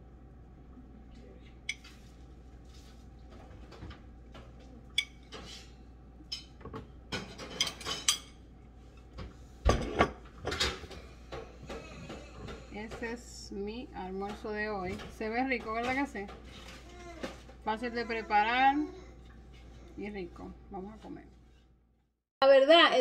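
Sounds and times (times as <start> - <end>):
dishes and cutlery clinking: 3.7 - 5.7, 6.3 - 8.4.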